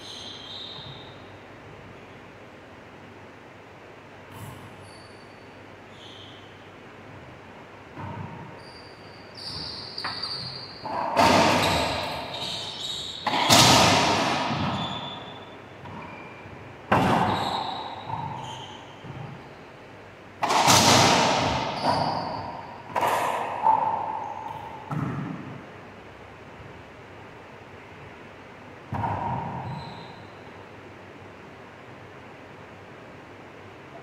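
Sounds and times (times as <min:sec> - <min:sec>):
sneakers squeaking on hardwood: 0:00.0 - 0:01.3, 0:04.3 - 0:06.6, 0:08.0 - 0:19.8, 0:20.5 - 0:25.4, 0:28.9 - 0:30.5
ball cracking off racquets and walls: 0:09.5 - 0:12.6, 0:13.2 - 0:19.5, 0:20.4 - 0:25.7, 0:28.9 - 0:29.7.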